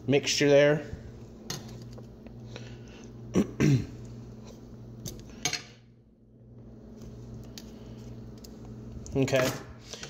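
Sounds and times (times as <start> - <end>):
steady low hum: 0.0 - 10.0
person clearing throat: 3.3 - 4.0.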